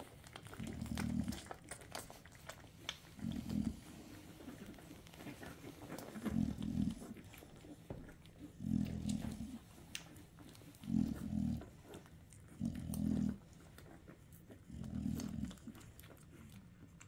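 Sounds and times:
dog grunting: 0:03.1 - 0:09.8, 0:10.6 - 0:16.3.

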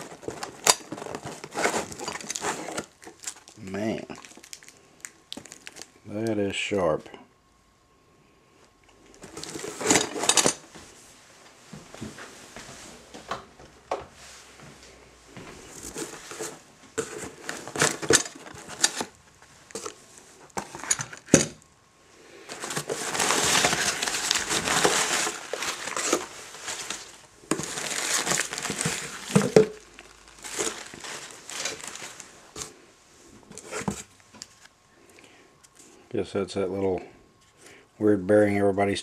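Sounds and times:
packing paper crinkling: 0:00.0 - 0:06.0, 0:09.1 - 0:10.6, 0:15.7 - 0:21.4, 0:22.4 - 0:32.7.

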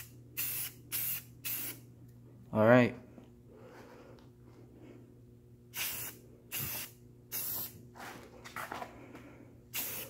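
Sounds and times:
aerosol spray can hissing: 0:00.0 - 0:01.8, 0:05.8 - 0:07.8, 0:09.7 - 0:10.0.

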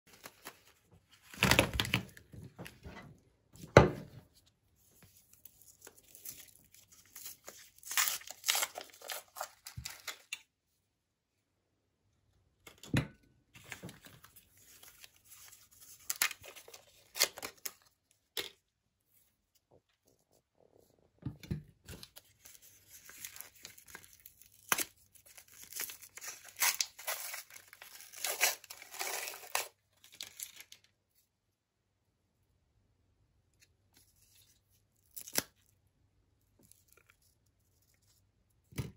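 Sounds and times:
paper wrappers crinkling and tearing: 0:05.3 - 0:10.4, 0:13.6 - 0:18.0, 0:21.9 - 0:30.9.

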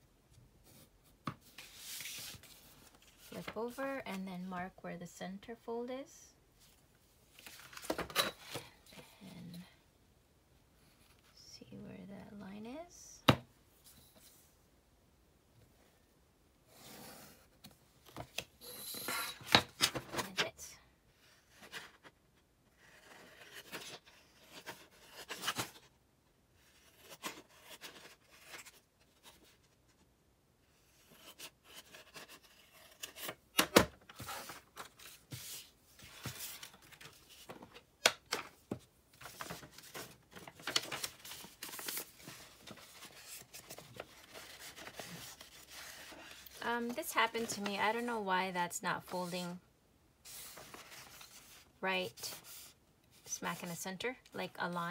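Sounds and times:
paper rustling: 0:39.2 - 0:47.7, 0:50.3 - 0:51.6.

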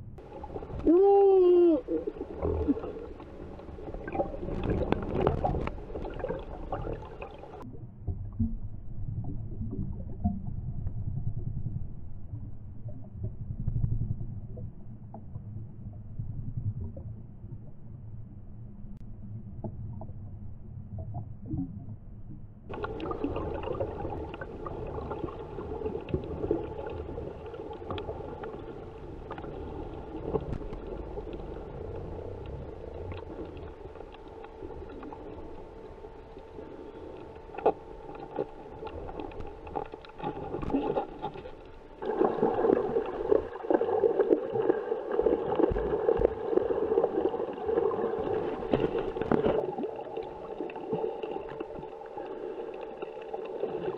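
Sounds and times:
rushing gurgling water underwater: 0:00.0 - 0:53.9
steady multi-tone hum: 0:22.0 - 0:53.9.

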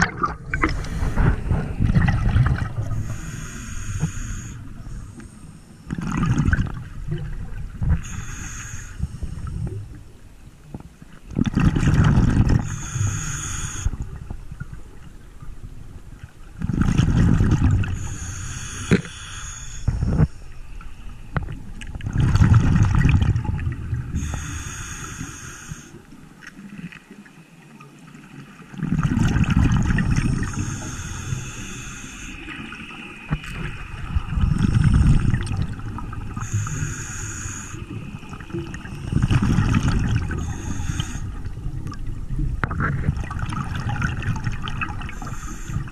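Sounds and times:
gurgle of exhaled bubbles: 0:00.0 - 0:03.2, 0:05.9 - 0:08.2, 0:11.3 - 0:12.9, 0:16.6 - 0:18.0, 0:21.4 - 0:24.3, 0:28.6 - 0:30.8, 0:32.4 - 0:36.9, 0:37.5 - 0:45.9
demand valve hiss: 0:36.4 - 0:37.9, 0:40.4 - 0:41.2.

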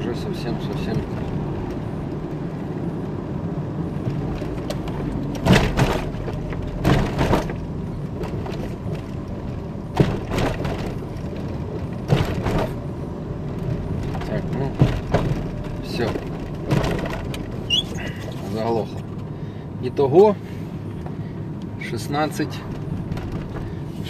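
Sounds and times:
car engine droning: 0:00.0 - 0:24.0
knocks as car jerks: 0:04.0 - 0:09.1, 0:09.9 - 0:12.8, 0:14.0 - 0:17.6.

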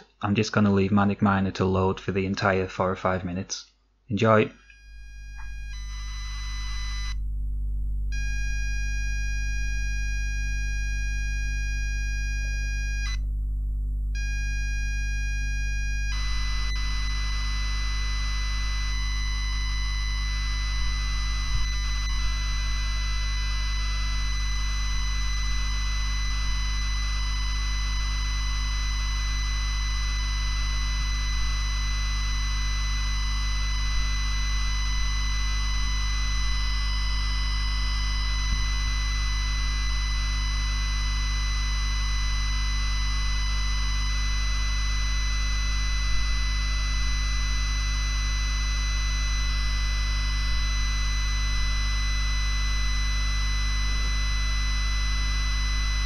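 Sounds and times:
harsh tape data buzz: 0:04.4 - 0:07.2, 0:14.2 - 0:52.0
low hum: 0:04.6 - 0:56.0.

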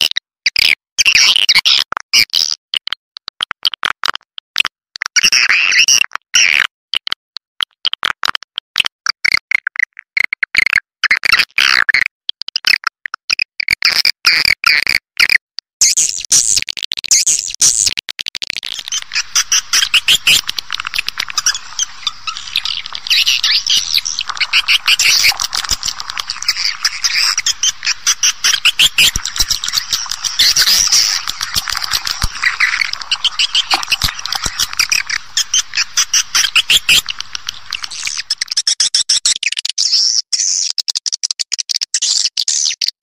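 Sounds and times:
swiftlets twittering chirps: 0:18.7 - 0:38.6.

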